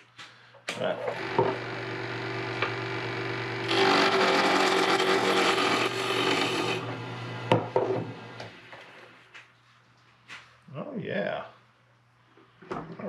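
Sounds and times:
wood lathe motor humming: 1.0s - 8.9s.

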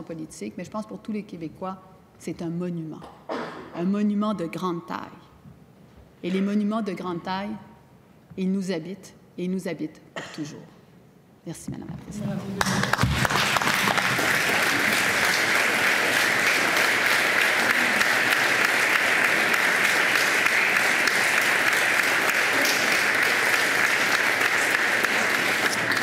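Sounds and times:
crowd applauding: 12.6s - 26.0s.

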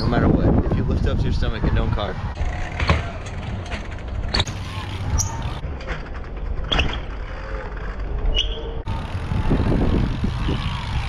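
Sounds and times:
wind on microphone: 0.0s - 3.4s, 8.8s - 11.0s
bike tyres rolling on concrete: 0.0s - 11.0s.

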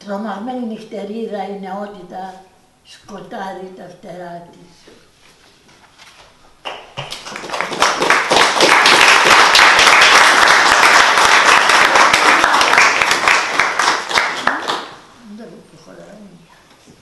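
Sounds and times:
audience applauding: 6.6s - 15.0s.

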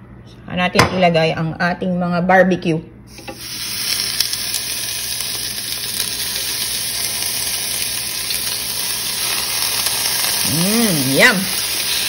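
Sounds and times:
meat sizzling on grill: 3.1s - 12.0s.

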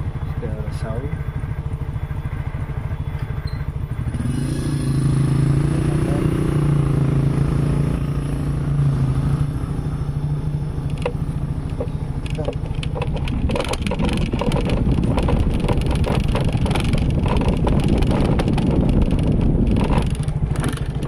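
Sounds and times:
scooter engine running: 0.0s - 21.0s.

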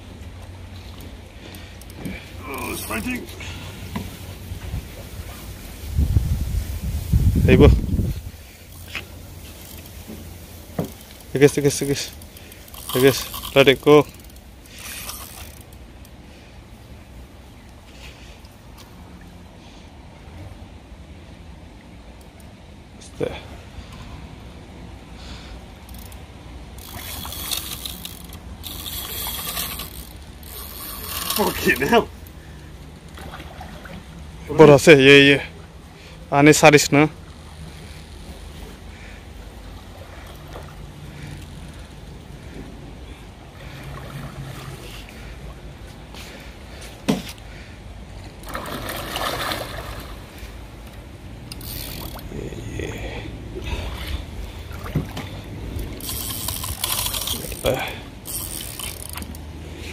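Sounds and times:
water splashing and sloshing: 0.0s - 22.8s, 25.2s - 52.5s, 53.2s - 59.9s
fishing reel ratcheting: 11.0s - 16.2s, 25.8s - 32.4s, 51.4s - 52.4s, 55.8s - 59.5s.

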